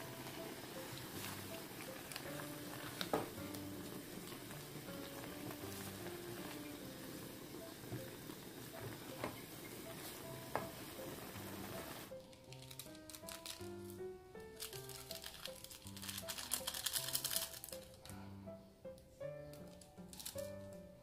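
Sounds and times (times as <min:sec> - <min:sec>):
soup bubbling in a pot: 0:00.0 - 0:12.2.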